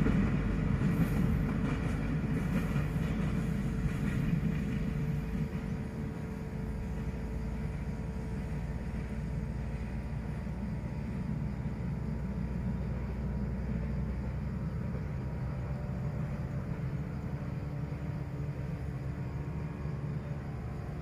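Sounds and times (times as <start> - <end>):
vehicle engine rumbling: 0.0 - 21.0
faint hum tones: 5.0 - 21.0.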